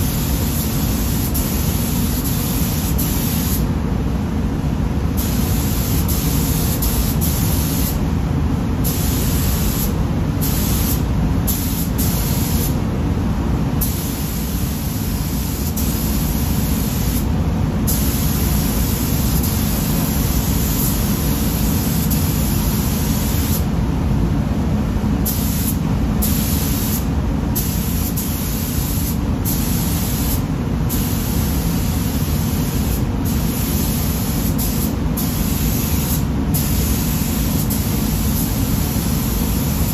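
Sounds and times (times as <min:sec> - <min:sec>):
spray gun hissing: 0:00.0 - 0:03.7, 0:05.2 - 0:08.0, 0:08.8 - 0:12.8, 0:13.8 - 0:23.7, 0:25.2 - 0:39.9
steady low rumble: 0:00.0 - 0:26.4.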